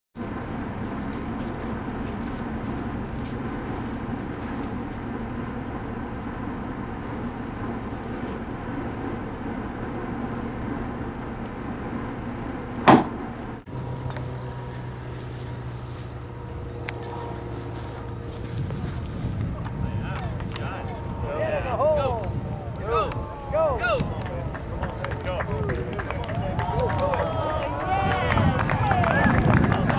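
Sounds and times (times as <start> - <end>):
outdoor background hum: 0.2 - 29.9
golf club striking ball: 12.8 - 13.3.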